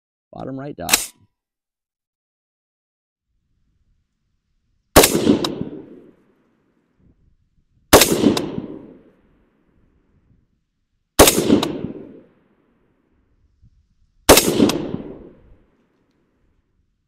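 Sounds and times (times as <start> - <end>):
rifle shots with echo: 5.0 - 6.4, 7.9 - 9.6, 11.2 - 12.5, 14.3 - 15.8.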